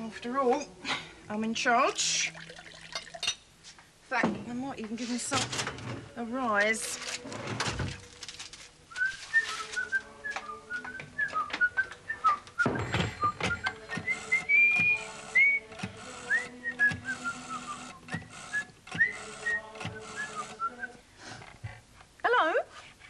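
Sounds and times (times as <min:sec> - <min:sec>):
person whistling a tune: 0:08.9 - 0:21.0.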